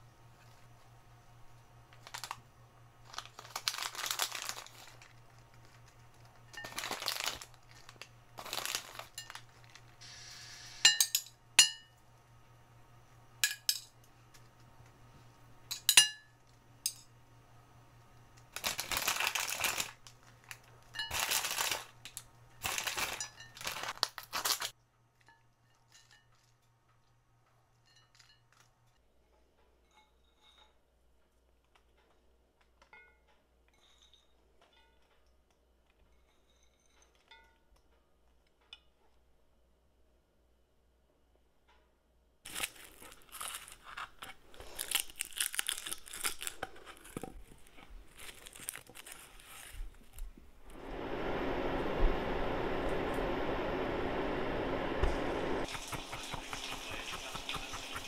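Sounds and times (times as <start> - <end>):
faint steady hum: 0.0 - 31.8, 42.4 - 58.0
rustling and crinkling: 1.9 - 2.4, 3.0 - 10.1, 18.4 - 33.4, 42.5 - 50.8.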